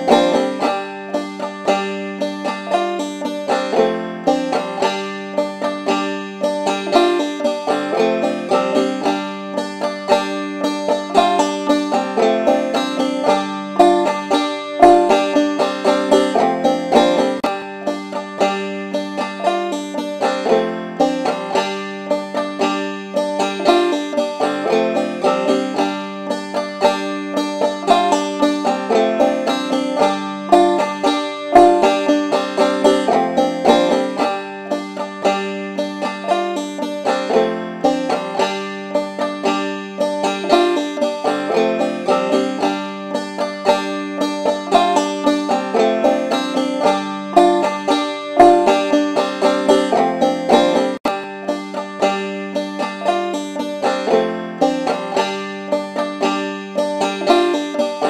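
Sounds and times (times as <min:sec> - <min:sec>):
fast picked banjo tune: 0:00.0 - 0:58.0.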